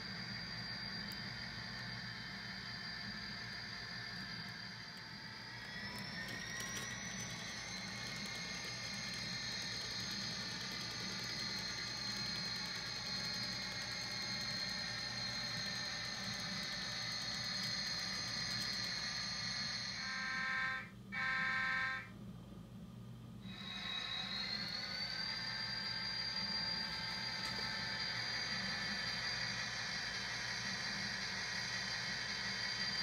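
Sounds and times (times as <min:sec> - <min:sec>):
model locomotive engine hum: 0:00.0 - 0:22.1, 0:23.4 - 0:33.0
locomotive horn blasts: 0:20.0 - 0:22.1.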